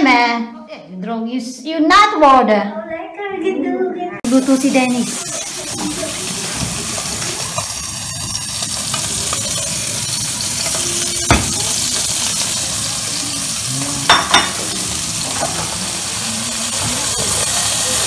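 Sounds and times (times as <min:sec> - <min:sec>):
food sizzling in oil: 0:04.2 - 0:18.0.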